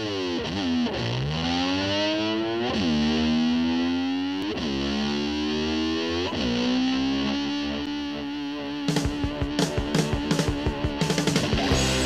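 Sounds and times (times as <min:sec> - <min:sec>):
distorted electric guitar swooping: 0:00.0 - 0:12.0.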